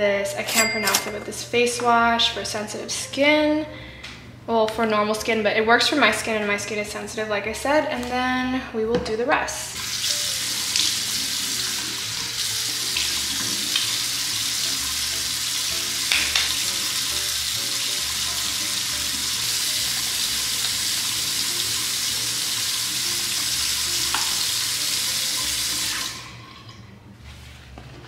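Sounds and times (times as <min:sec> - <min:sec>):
sink tap running: 0:09.8 - 0:26.5.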